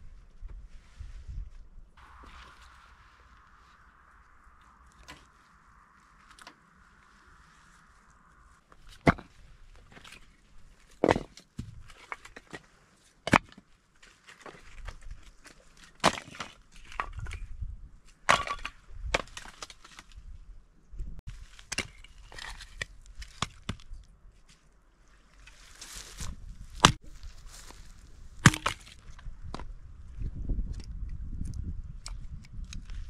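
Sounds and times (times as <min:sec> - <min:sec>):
rustling: 0:00.7 - 0:11.0, 0:24.4 - 0:29.1
wood being chopped: 0:11.0 - 0:11.8, 0:26.8 - 0:27.0, 0:28.4 - 0:29.7.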